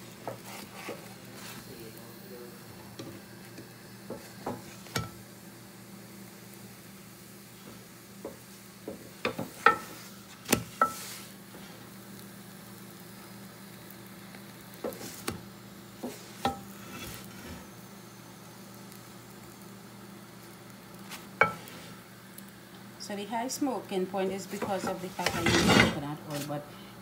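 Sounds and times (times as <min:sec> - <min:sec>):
faint steady hum: 0:00.0 - 0:27.0
light sizzle: 0:00.0 - 0:27.0
spatula tapping metal griddle: 0:04.1 - 0:05.2, 0:08.2 - 0:09.9, 0:10.5 - 0:11.1, 0:16.0 - 0:16.8.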